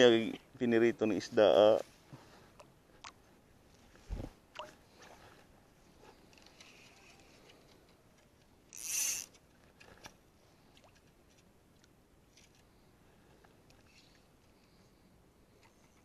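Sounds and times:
faint reel clicks: 6.3s - 10.1s
fishing line zipping off reel: 8.7s - 9.4s.

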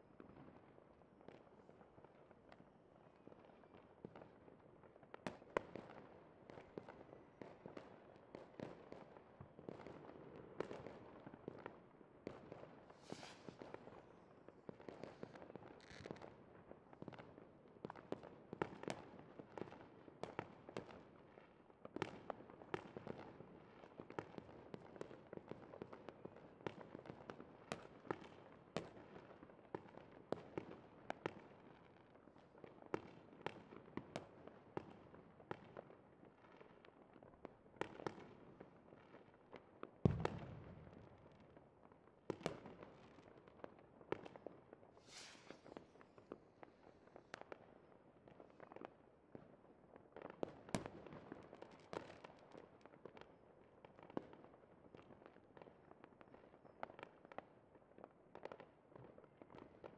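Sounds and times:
fireworks popping and cracking: 12.4s - 14.0s, 14.7s - 16.4s, 40.0s - 41.6s, 44.2s - 47.6s.

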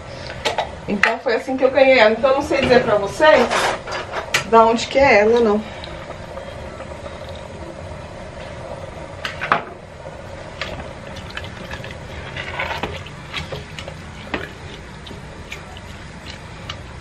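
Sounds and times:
steady low hum: 0.0s - 17.0s
wooden spoon stirring in pot: 10.3s - 17.0s.

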